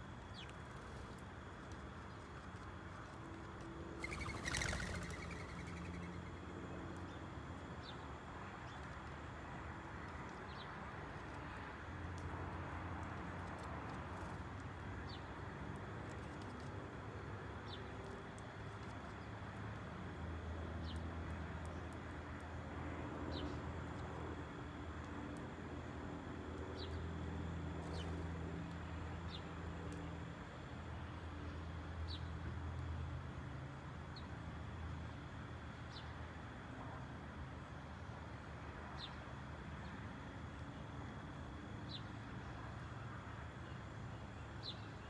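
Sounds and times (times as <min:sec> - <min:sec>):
outdoor background hum: 0:00.0 - 0:45.0
sparrows chirping: 0:04.0 - 0:06.4.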